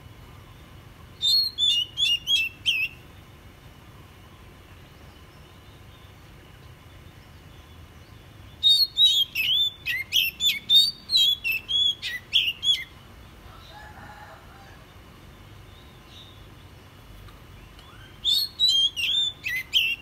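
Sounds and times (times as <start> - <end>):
bird singing whistled notes: 1.2 - 3.2, 4.3 - 13.0, 17.5 - 20.0.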